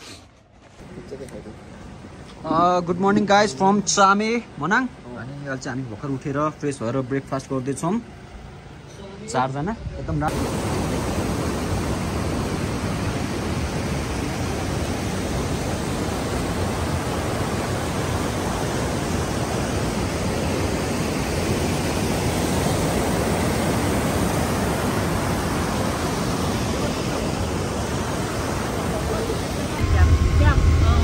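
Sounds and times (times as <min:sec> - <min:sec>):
loud rushing noise: 0:24.6 - 0:31.0.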